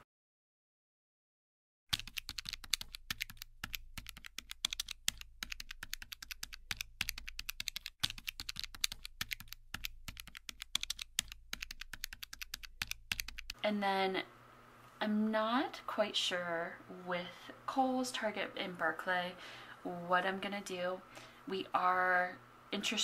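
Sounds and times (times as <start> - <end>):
low steady hum: 8.5 - 23.0.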